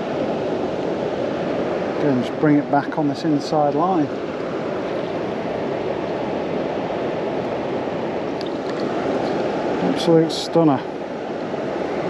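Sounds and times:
water rushing over a weir: 0.0 - 12.0.

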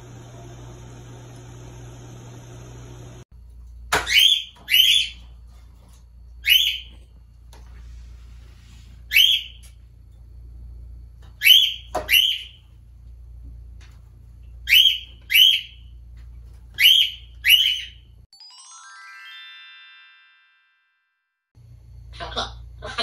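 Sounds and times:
parrot chirping: 4.1 - 5.2, 6.4 - 6.9, 9.1 - 9.6, 11.4 - 12.6, 14.6 - 15.9, 16.8 - 18.1.

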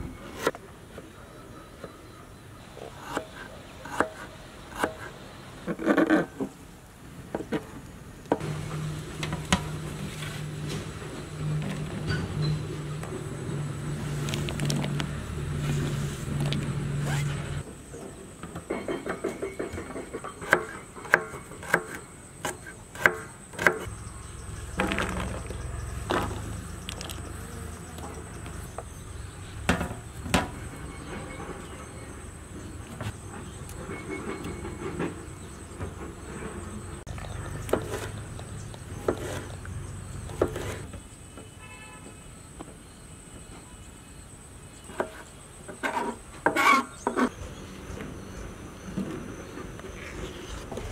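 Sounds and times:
steady low hum: 8.4 - 17.7.

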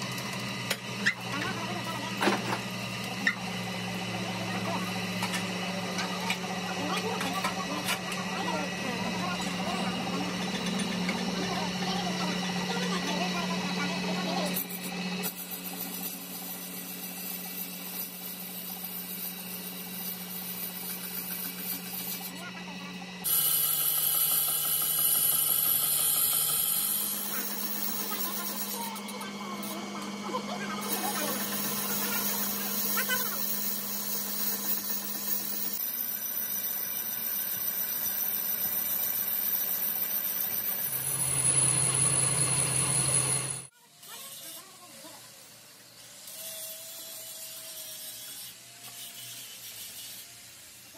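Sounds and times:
metal lathe humming: 0.0 - 43.7
tool bit cutting hiss: 13.8 - 22.4, 23.2 - 45.0, 46.0 - 50.9.

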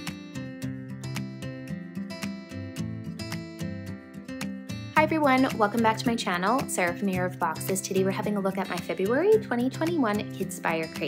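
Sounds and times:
instrumental music with steady beat: 0.0 - 7.8.

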